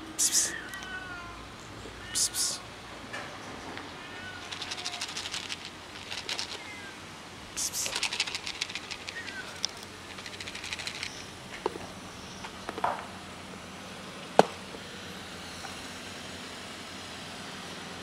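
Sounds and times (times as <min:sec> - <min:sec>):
plastic container crackling: 0:04.4 - 0:06.7, 0:07.8 - 0:11.2.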